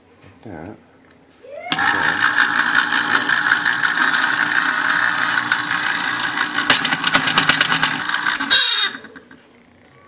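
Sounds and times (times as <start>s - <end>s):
gears clicking rapidly: 1.7s - 9.2s
electric pencil sharpener motor whir: 1.7s - 9.4s.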